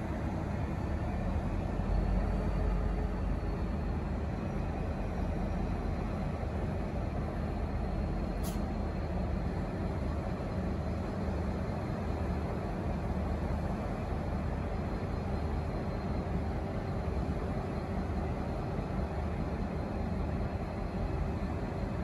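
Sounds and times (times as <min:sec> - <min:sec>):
diesel locomotive engine rumbling: 0:00.0 - 0:22.0
brief click: 0:08.4 - 0:08.7.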